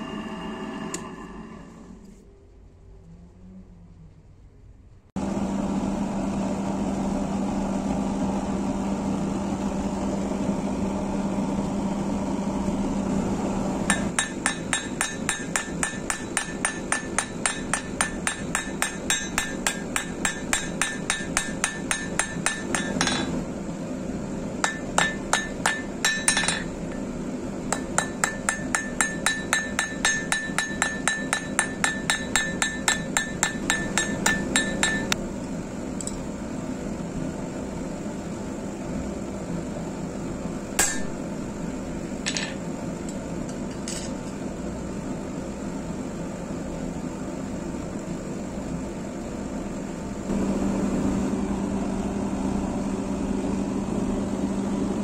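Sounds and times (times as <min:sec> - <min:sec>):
gas forge burner humming: 0:00.0 - 0:04.1, 0:05.0 - 0:55.0
hammer striking blade on anvil: 0:13.9 - 0:23.4, 0:24.6 - 0:27.0, 0:27.7 - 0:35.2, 0:40.8 - 0:41.2, 0:42.3 - 0:44.2.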